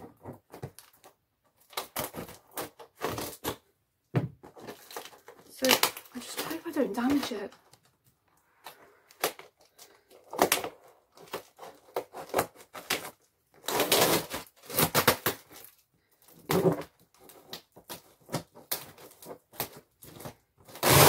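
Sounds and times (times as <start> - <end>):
cutting cardboard box: 1.6 - 3.7, 10.1 - 15.7, 16.3 - 21.0
scraping and rustling: 4.4 - 21.0.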